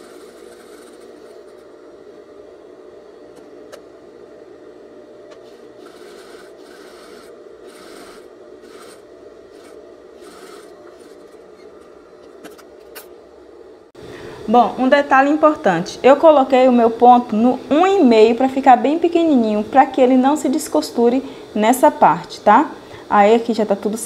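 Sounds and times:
sewing machine running: 0.0s - 1.7s, 5.4s - 11.7s.

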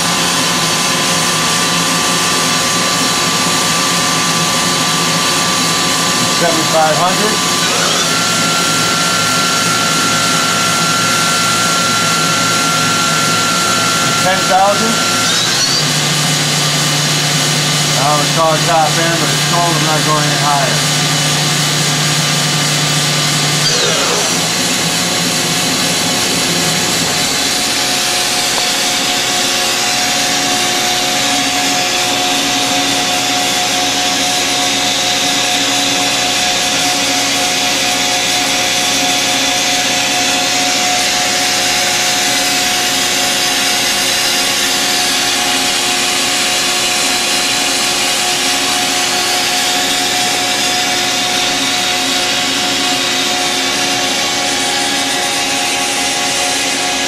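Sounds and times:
spindle spinning down whine: 0.0s - 33.2s
machine running noise: 0.0s - 57.0s.

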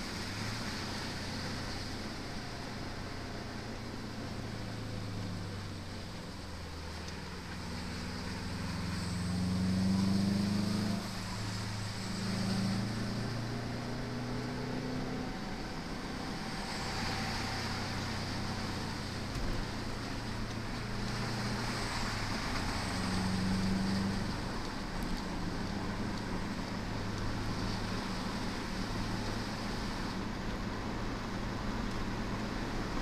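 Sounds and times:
road and wind noise: 0.0s - 33.0s
car engine revving: 6.9s - 30.2s.

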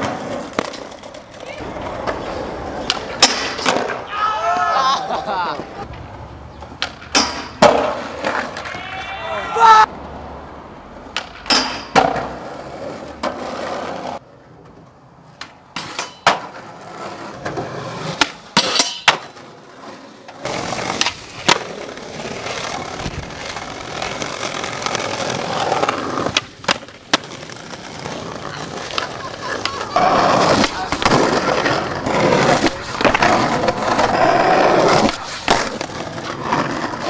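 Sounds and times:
skateboard popping and landing: 0.0s - 4.1s, 5.6s - 9.0s, 11.0s - 37.0s
skateboard wheels rolling: 0.0s - 37.0s.

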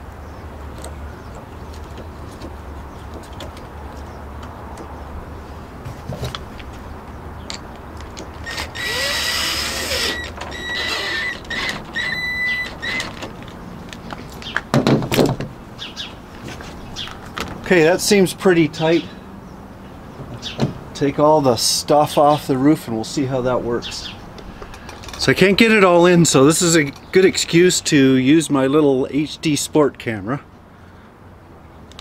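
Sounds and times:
cordless drill whining: 8.4s - 13.2s
drill trigger bursts: 8.4s - 13.2s
loud knocks: 14.7s - 15.5s.

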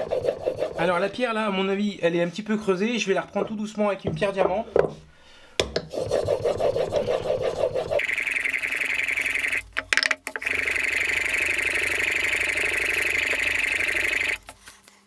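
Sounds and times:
plane iron honing on water stone: 0.0s - 1.1s, 5.9s - 8.0s.

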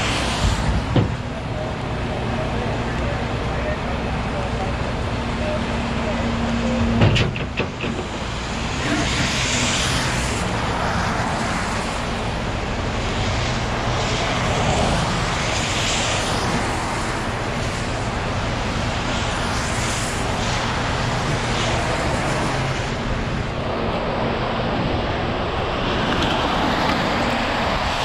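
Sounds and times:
traffic hissing on wet road: 0.0s - 28.0s.

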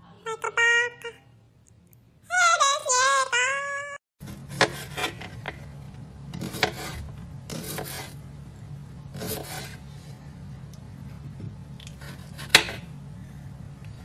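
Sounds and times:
knife slicing cucumber on board: 4.3s - 5.4s, 6.4s - 8.2s, 9.2s - 9.8s, 11.9s - 12.9s.

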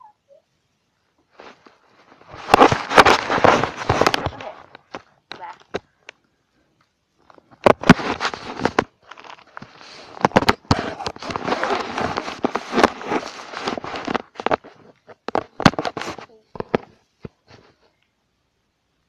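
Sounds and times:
rubbing and knocking on microphone: 1.2s - 6.0s, 7.2s - 17.9s.

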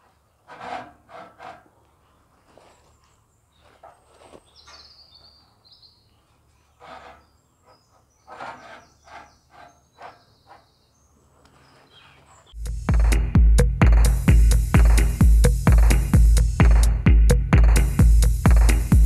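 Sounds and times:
birds chirping: 1.7s - 13.3s.

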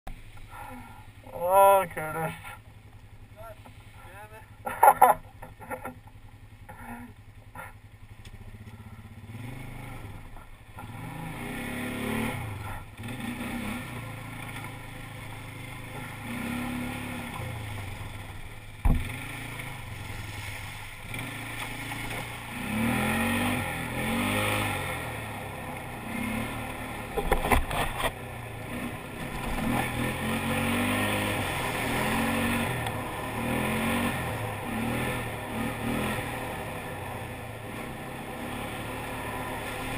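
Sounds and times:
atv engine revving: 0.2s - 39.9s
water splashing: 16.6s - 22.5s
sharp knock: 18.8s - 19.1s.

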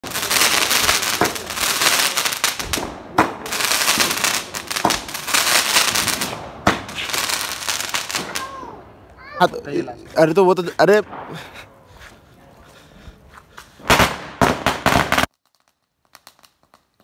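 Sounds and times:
loud sharp bangs: 0.0s - 8.8s, 10.8s - 11.8s, 13.8s - 15.3s
firecrackers crackling: 0.0s - 17.0s.

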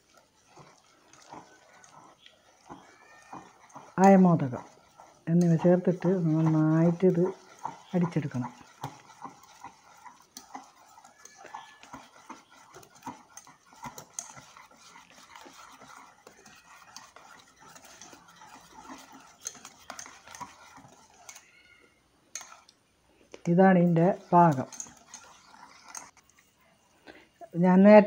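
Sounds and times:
wet batter slaps: 0.0s - 21.3s.

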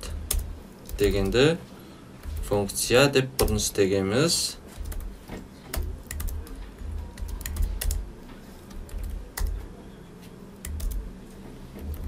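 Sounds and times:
keyboard keystroke clicks: 5.7s - 6.6s, 10.6s - 11.0s.

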